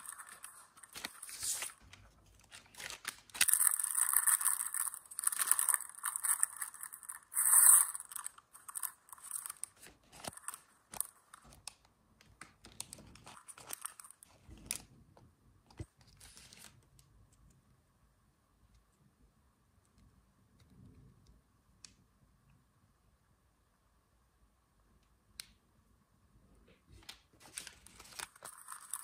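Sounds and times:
plastic wrappers crinkling and tearing: 0.0 - 14.9, 27.0 - 29.0.

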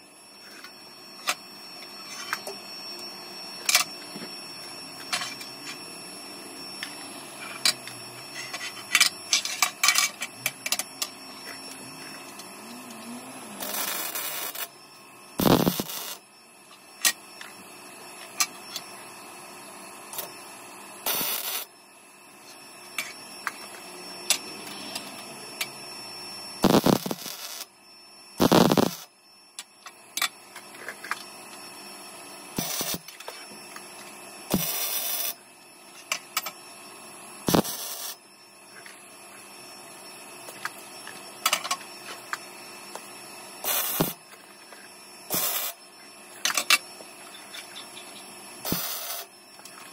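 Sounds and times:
electric welding arc bursts: 12.6 - 16.2, 21.0 - 21.8, 26.6 - 27.8, 28.4 - 29.2, 32.5 - 33.2, 34.5 - 35.4, 37.4 - 38.2, 43.6 - 44.2, 45.3 - 45.8, 48.6 - 49.4.

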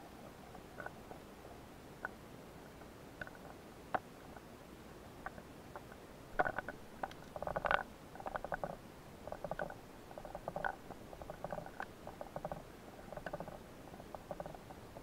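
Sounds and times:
rapid underwater clicking: 5.2 - 15.0.

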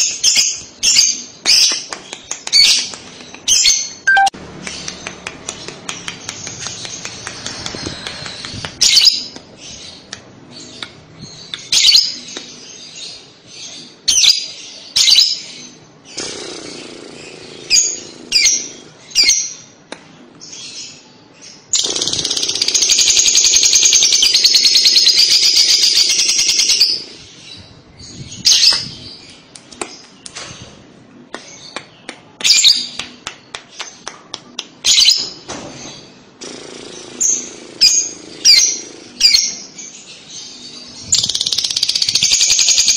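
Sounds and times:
lovebird chirping: 3.5 - 5.0.

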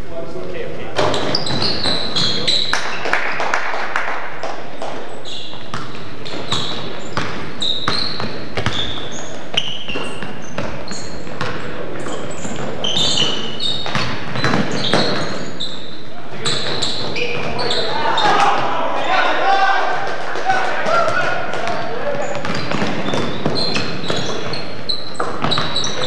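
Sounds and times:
sneakers squeaking on gym floor: 1.0 - 3.1, 4.6 - 18.6, 21.6 - 26.0
basketball bouncing: 4.4 - 15.5, 21.1 - 26.0.

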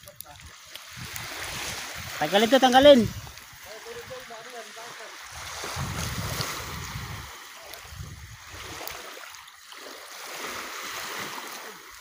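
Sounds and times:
wind buffeting microphone: 0.0 - 4.3, 5.3 - 9.1.

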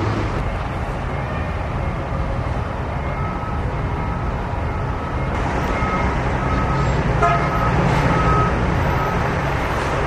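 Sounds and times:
high-pitched car horn toots: 7.2 - 7.8.

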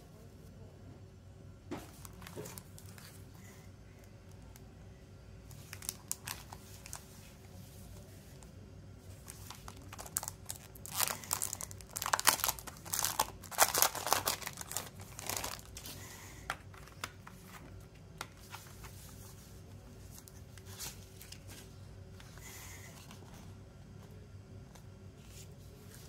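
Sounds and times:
plastic wrap crinkling: 5.5 - 7.2, 9.1 - 16.0.

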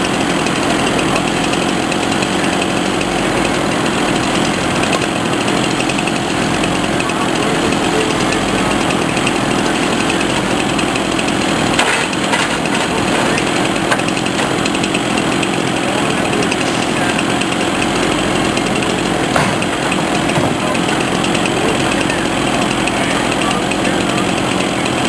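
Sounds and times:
log loader engine and hydraulics: 0.0 - 25.0
sharp knocks: 10.8 - 15.5, 19.3 - 21.0.

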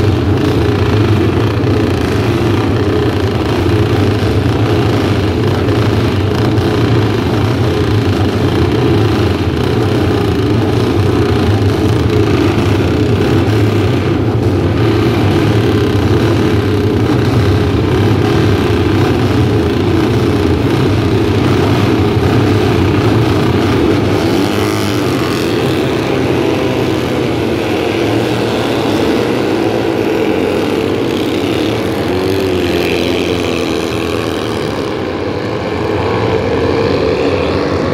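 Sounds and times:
racing motorcycle engines: 0.0 - 37.9
motorcycle revving past: 21.0 - 37.9.

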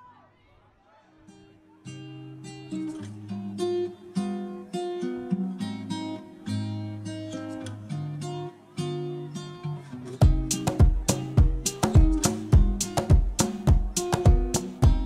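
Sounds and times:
acoustic guitar plucking: 1.3 - 15.0.

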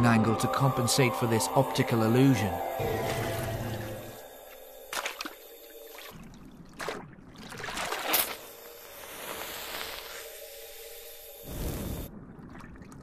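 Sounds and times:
water splashing and trickling: 4.9 - 8.5, 12.1 - 13.0
short splashes: 6.0 - 8.4.

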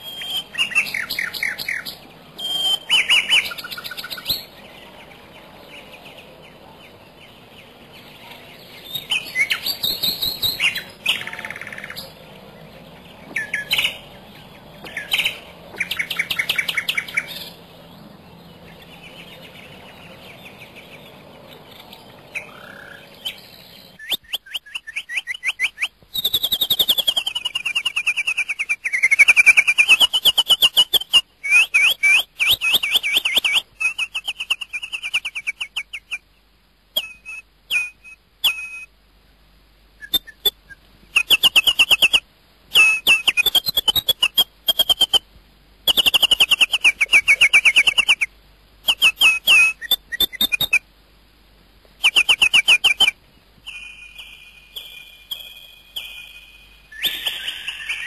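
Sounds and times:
bird trills and chirping: 0.0 - 36.2, 37.0 - 38.9, 40.0 - 45.2, 45.9 - 50.8, 52.0 - 58.0.

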